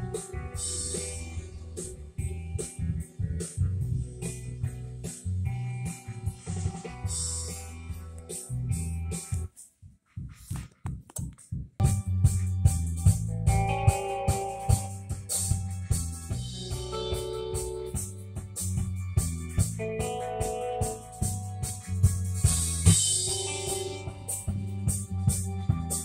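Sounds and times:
music through speakers: 0.0s - 26.0s.

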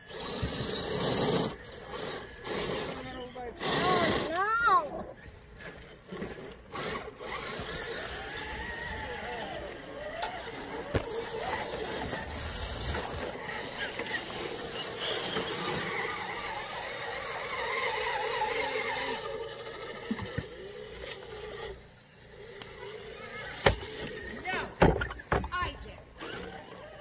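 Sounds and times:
toy truck electric motors whining: 0.0s - 27.0s
tyres knocking on wood and rock: 24.8s - 25.7s.

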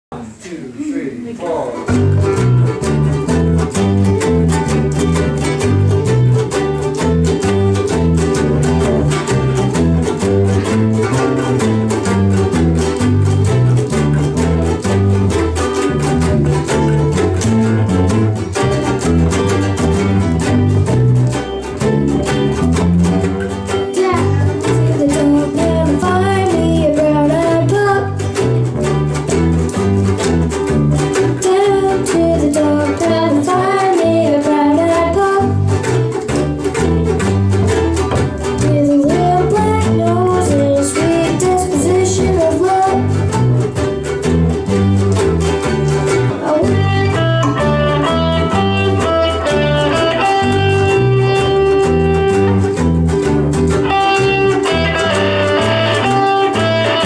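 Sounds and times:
guitars playing blues: 1.2s - 57.0s
girl singing into a microphone: 24.0s - 28.2s, 31.4s - 35.6s, 38.7s - 43.1s.

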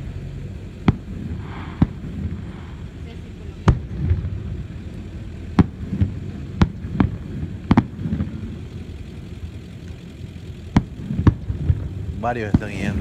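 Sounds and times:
low rumble: 0.0s - 13.0s
fireworks bangs: 0.8s - 8.5s, 10.7s - 13.0s.

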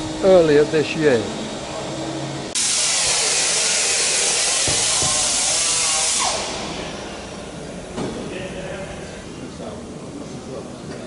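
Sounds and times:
rushing air hiss: 2.5s - 8.9s.

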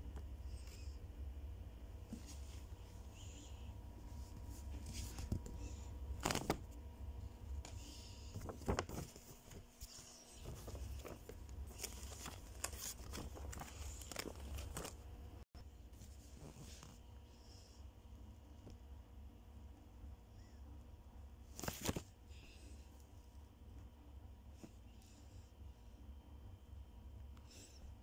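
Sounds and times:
low steady rumble: 0.0s - 21.5s
paper rustling: 4.1s - 6.7s, 7.6s - 15.0s, 21.5s - 22.1s.

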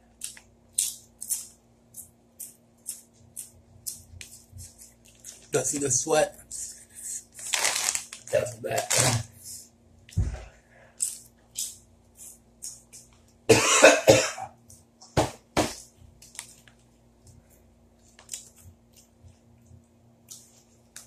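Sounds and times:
man coughing hard: 13.5s - 14.6s.

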